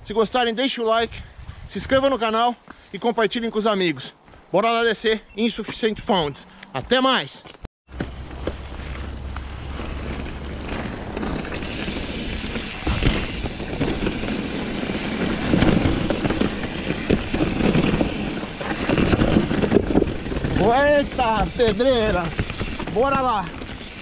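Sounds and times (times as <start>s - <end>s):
bike knocking and rattling on rocks: 7.9s - 24.0s
bike tyres rolling on trail: 7.9s - 24.0s.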